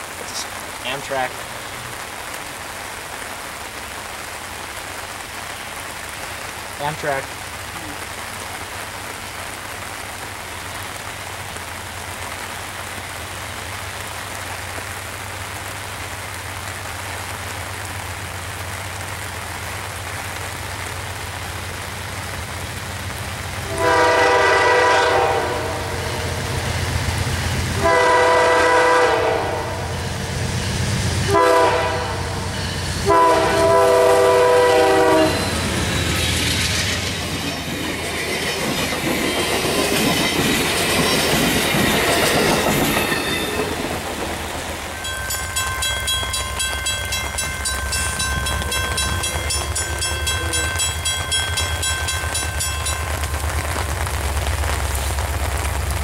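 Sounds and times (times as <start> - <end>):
steady rain hiss: 0.0 - 56.0
train horn: 23.6 - 26.4, 27.8 - 30.0, 31.2 - 32.4, 33.0 - 35.6
train wheels clacking over rail joints: 35.4 - 53.2.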